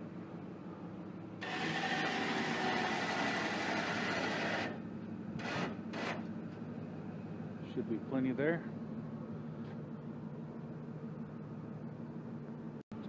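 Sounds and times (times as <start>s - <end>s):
hydraulic lift pump running: 1.4s - 7.6s.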